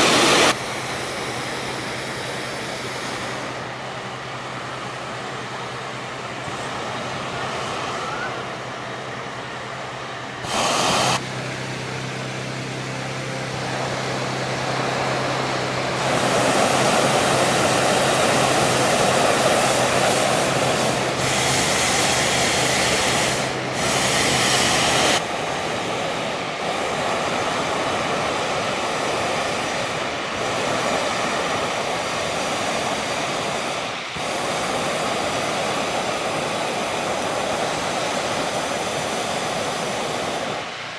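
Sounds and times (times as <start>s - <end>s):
engine drone: 0.0s - 40.9s
propane burner roaring: 0.0s - 40.9s.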